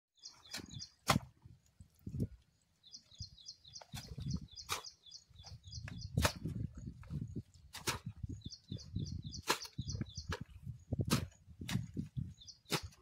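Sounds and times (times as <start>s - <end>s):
small bird chirping: 0.2s - 1.0s, 2.8s - 7.4s, 8.2s - 11.0s, 12.2s - 12.9s
wooden beater thudding on soil: 0.5s - 1.3s, 5.8s - 6.6s, 7.7s - 8.4s, 9.4s - 13.0s.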